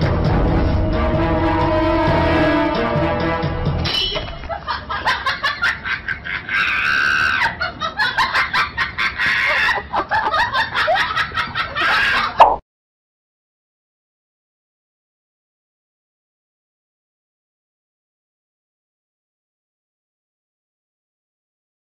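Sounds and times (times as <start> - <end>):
music: 0.0 - 4.4.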